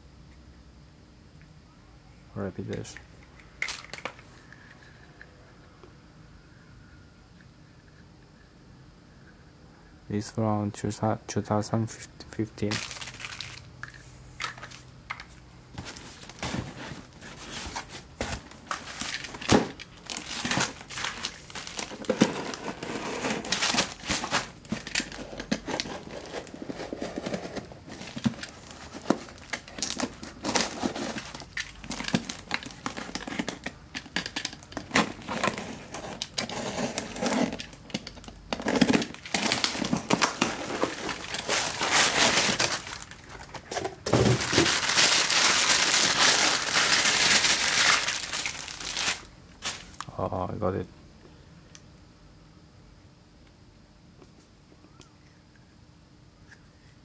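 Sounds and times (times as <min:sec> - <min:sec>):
packing tape torn open: 0:12.6 - 0:13.7, 0:17.4 - 0:50.1
plastic bag and bubble wrap crinkling: 0:12.6 - 0:13.7, 0:15.7 - 0:50.1.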